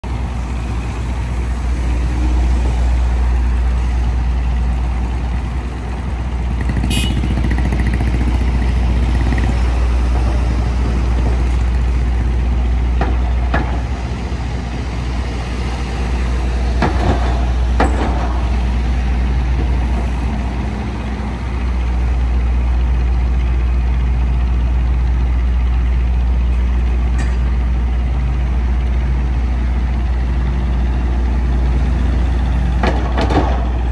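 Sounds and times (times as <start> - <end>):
street traffic passing: 0.0 - 33.9
truck engines idling: 0.0 - 33.9.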